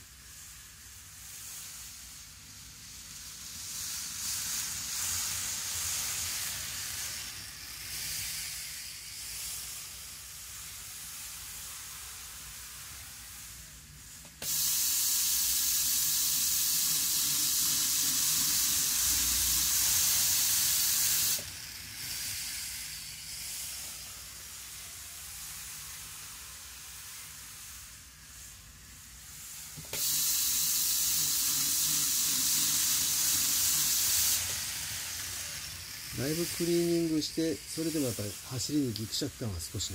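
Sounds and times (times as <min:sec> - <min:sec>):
model train running on track: 0:02.1 - 0:09.2, 0:14.5 - 0:23.4, 0:30.0 - 0:39.9.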